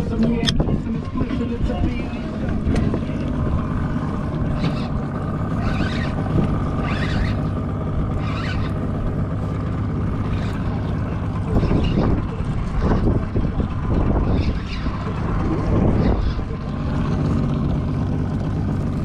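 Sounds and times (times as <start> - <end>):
outboard motor humming: 0.0 - 19.0
wind on microphone: 0.0 - 19.0
fishing reel cranking: 5.6 - 7.5, 8.1 - 8.9.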